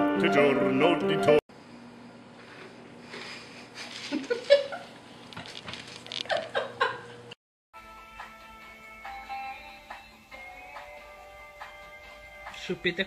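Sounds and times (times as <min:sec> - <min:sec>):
person laughing and giggling: 0:03.4 - 0:07.2.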